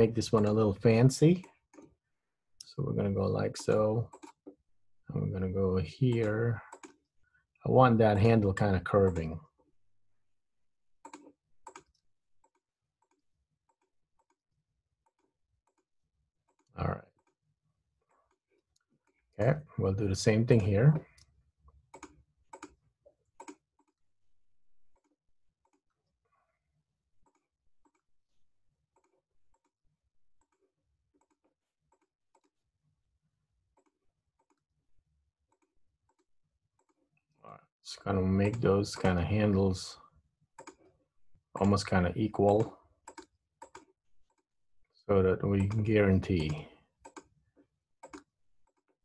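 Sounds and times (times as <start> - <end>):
computer keyboard and mouse clicks: 0.0 - 0.8, 3.6 - 4.6, 6.2 - 7.0, 11.0 - 14.4, 20.5 - 24.0, 40.6 - 40.9, 41.6 - 44.5, 45.4 - 49.0.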